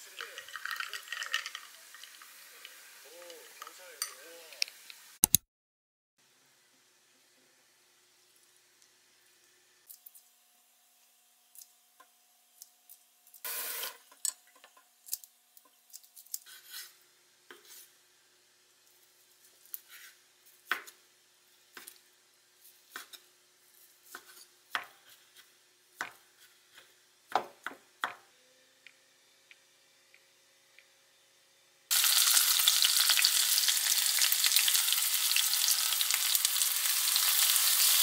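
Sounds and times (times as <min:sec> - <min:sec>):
metal tongs clinking on dish: 0:03.6 - 0:04.2.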